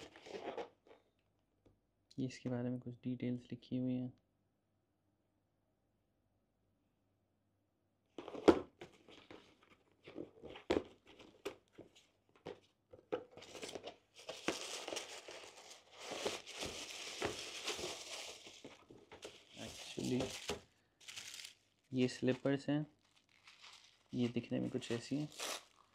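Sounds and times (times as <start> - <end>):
tissue paper crinkling: 13.4 - 25.9.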